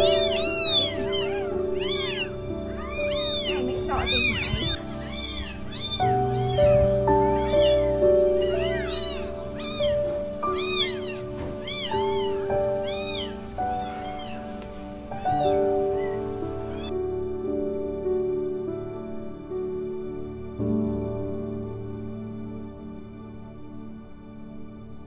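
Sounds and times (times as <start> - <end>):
kittens meowing: 0.0 - 17.0
soft background music: 0.0 - 25.0.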